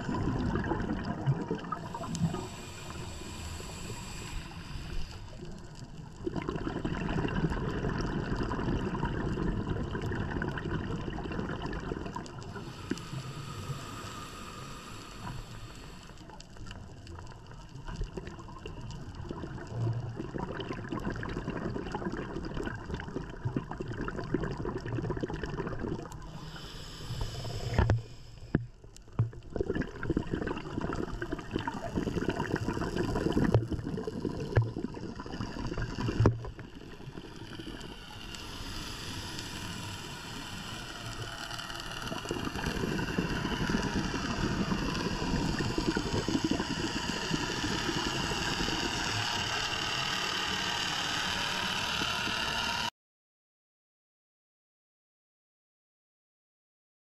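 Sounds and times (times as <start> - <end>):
steady hissing with faint whine: 0.0 - 6.5, 12.0 - 19.8, 26.1 - 29.2, 30.5 - 52.9
regulator exhaled bubbles gurgling: 0.0 - 52.9
regulator inhalation hiss: 1.7 - 5.8, 12.5 - 16.4, 26.2 - 28.6, 35.2 - 52.9.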